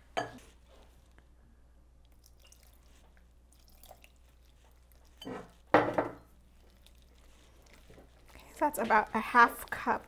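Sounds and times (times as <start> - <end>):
water pouring into a bowl: 2.2 - 4.6.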